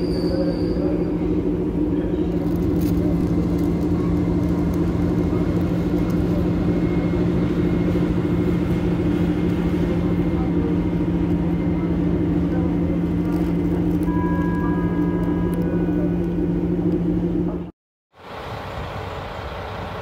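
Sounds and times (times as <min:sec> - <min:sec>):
diesel locomotive passing: 0:00.0 - 0:20.0.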